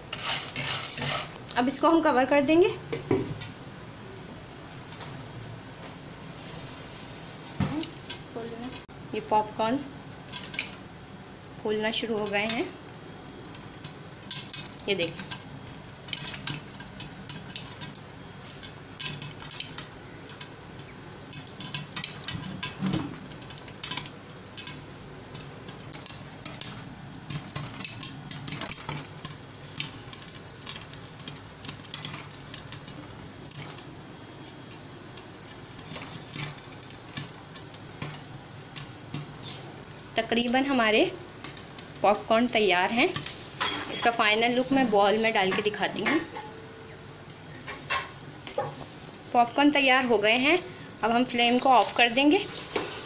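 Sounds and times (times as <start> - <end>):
frying oil hissing: 0.0 - 53.0
popcorn popping: 11.8 - 53.0.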